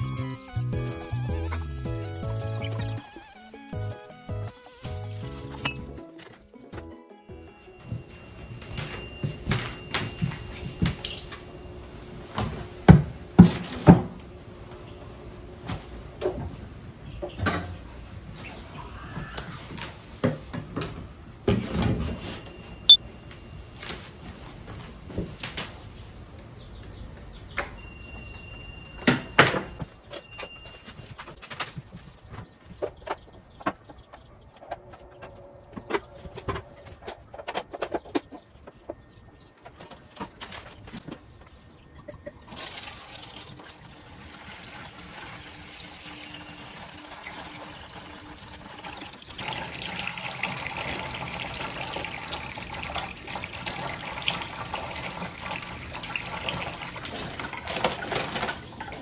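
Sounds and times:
water draining through siphon hose: 42.4 - 59.0.

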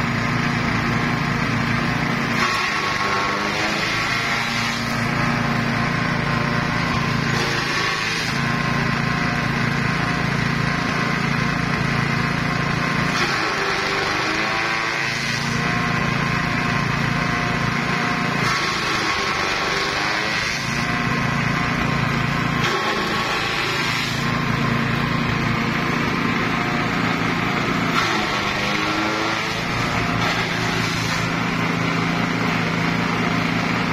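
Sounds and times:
grass being chopped: 0.0 - 33.9
small petrol engine running: 0.0 - 33.9.

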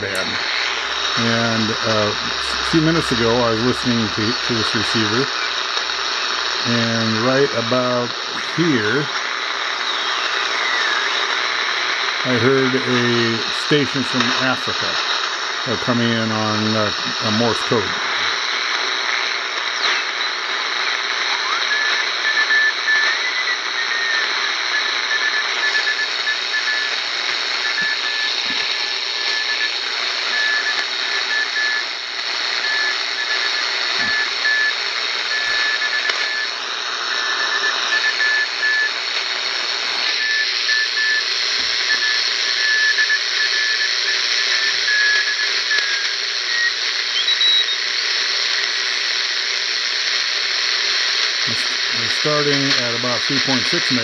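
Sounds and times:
radio hiss and static: 0.0 - 54.0
morse code beeps: 27.6 - 28.4, 35.3 - 36.5, 47.2 - 47.8.

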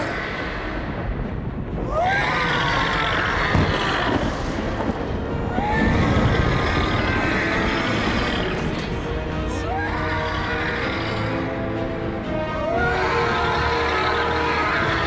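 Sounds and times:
monster roar: 2.2 - 4.5, 5.7 - 11.5, 12.8 - 15.0.

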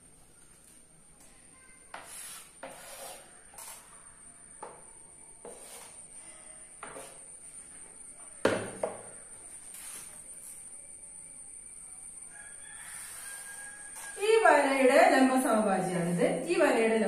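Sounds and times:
faint high whine: 0.0 - 17.0
drawing instruments scraping on paper: 1.9 - 3.9, 5.4 - 6.0, 12.8 - 14.2.

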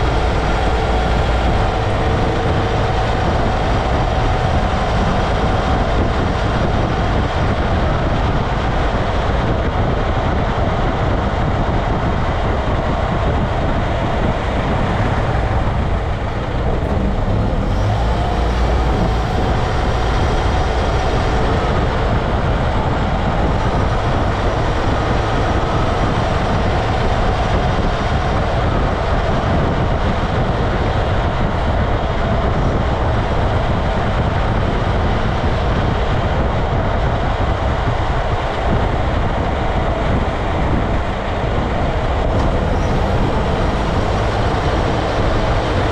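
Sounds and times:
deep drone: 0.0 - 45.9
tyres rolling on pavement: 0.0 - 45.9
rushing air: 37.5 - 45.9.

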